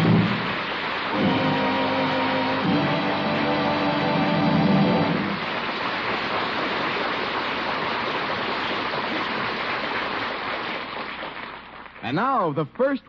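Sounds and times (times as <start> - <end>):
music: 0.0 - 5.4
recording hiss and crackle: 0.0 - 13.0.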